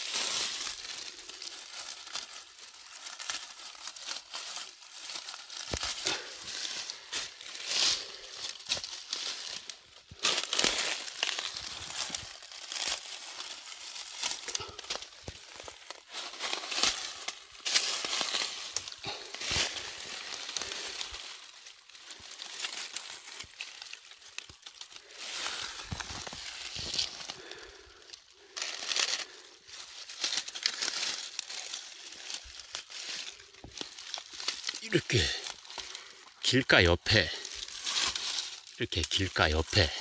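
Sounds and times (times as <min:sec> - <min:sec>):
twigs cracking: 0:00.0 - 0:36.4, 0:37.1 - 0:40.0
dry leaves and twigs crackling: 0:00.0 - 0:40.0.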